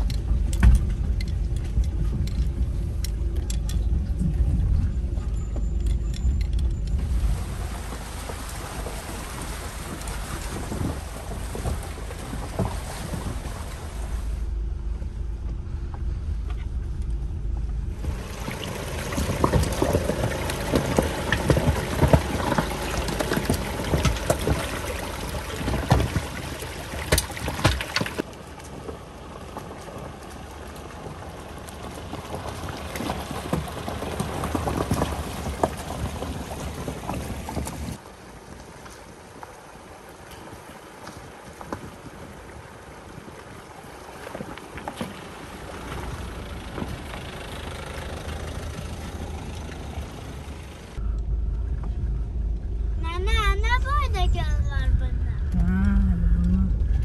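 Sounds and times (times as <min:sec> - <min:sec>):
water splashing around tyres: 0:00.0 - 0:14.5, 0:17.8 - 0:51.0
low vehicle rumble: 0:00.0 - 0:57.0
stones knocking under vehicle: 0:18.0 - 0:38.0.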